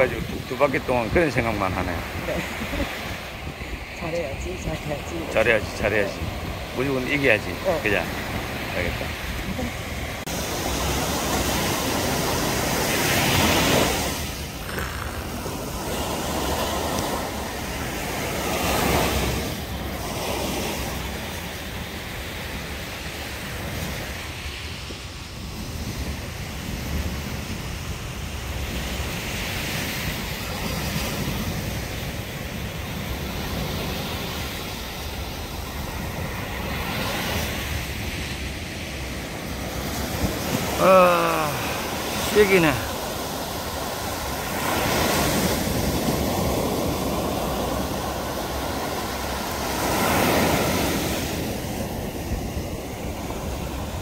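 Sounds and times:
wind on microphone: 0.0s - 42.2s
waves breaking on a beach: 0.0s - 54.0s.

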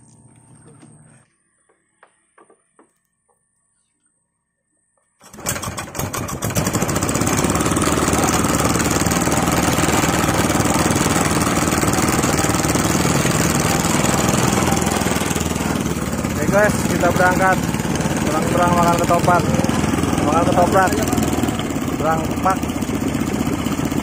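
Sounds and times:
boat engine running: 5.2s - 24.0s.

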